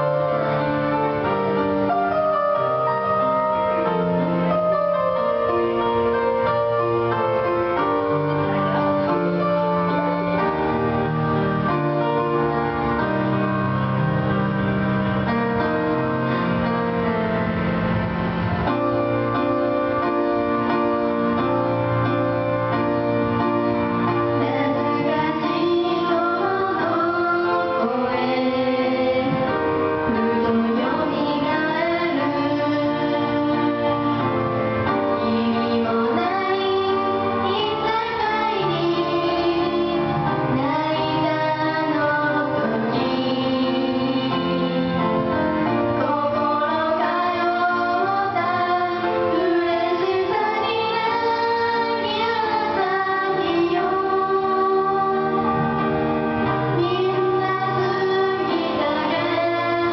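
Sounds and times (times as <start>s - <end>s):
karaoke backing track: 0.0s - 59.9s
girls singing duet: 24.0s - 59.9s.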